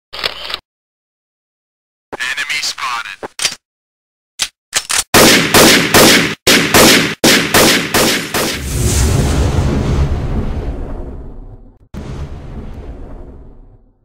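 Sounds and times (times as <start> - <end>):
gunshots with echo: 5.2 - 8.6
low rumble: 8.6 - 14.0.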